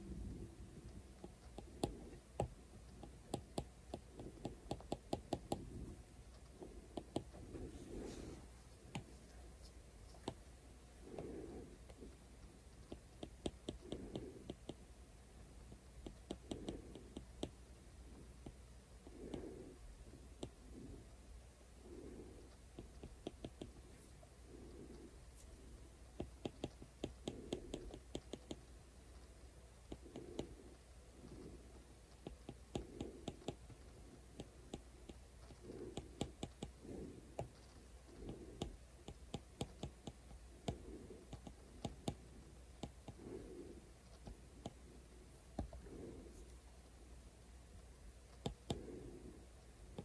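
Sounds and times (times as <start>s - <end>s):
soft low rubbing: 5.6s - 12.6s
stylus tapping glass screen: 6.9s - 7.3s.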